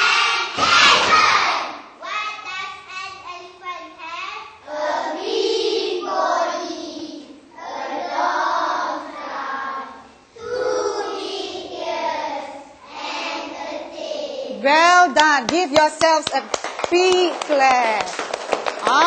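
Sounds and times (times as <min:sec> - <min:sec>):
children singing in unison: 0:00.0 - 0:01.8, 0:04.7 - 0:14.5.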